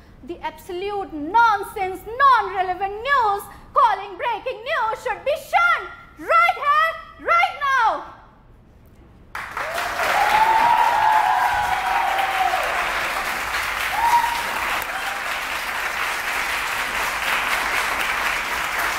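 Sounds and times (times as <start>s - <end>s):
people applauding: 9.3s - 18.9s.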